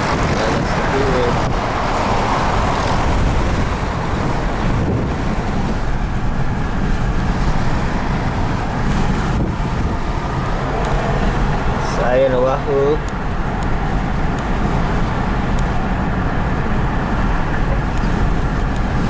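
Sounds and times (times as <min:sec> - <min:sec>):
car road and wind noise: 0:00.0 - 0:19.0.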